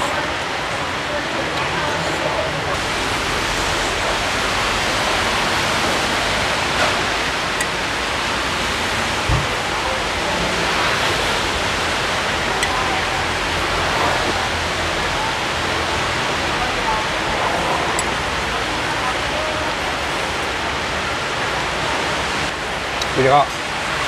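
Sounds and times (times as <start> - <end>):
steady rushing noise: 0.0 - 24.0.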